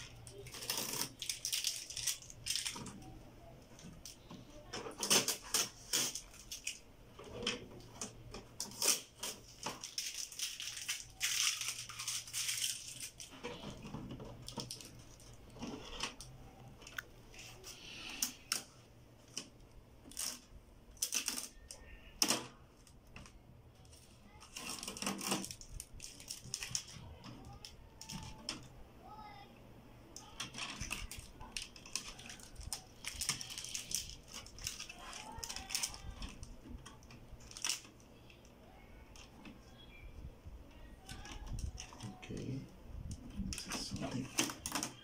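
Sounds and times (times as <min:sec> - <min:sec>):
packing tape pulled off: 0:00.2 - 0:02.9, 0:08.6 - 0:13.3.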